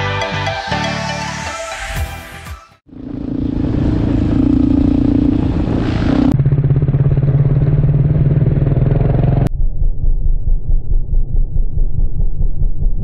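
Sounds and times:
dirt bike engine running: 2.9 - 9.5.

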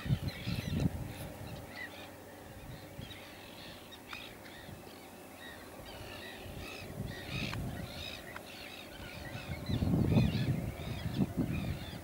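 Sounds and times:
wind on microphone: 0.0 - 1.7, 5.8 - 8.3, 8.9 - 12.0
many birds calling: 0.0 - 12.0.

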